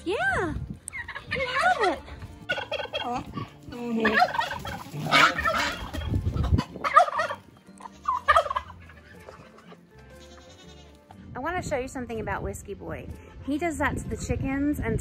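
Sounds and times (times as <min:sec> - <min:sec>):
turkey gobbling: 0:00.9 - 0:09.8.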